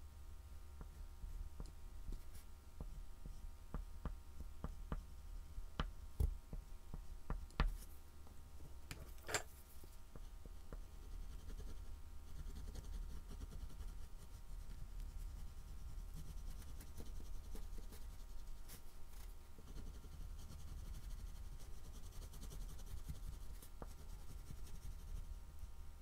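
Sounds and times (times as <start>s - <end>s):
steady low hum: 0.0s - 26.0s
pastel scratching on board: 19.6s - 25.3s.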